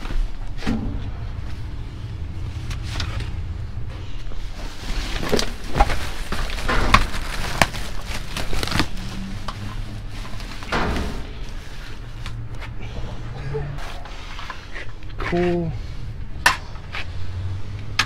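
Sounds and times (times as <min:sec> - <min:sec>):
low rumble: 0:00.0 - 0:14.7
items knocking and clattering: 0:05.1 - 0:11.8.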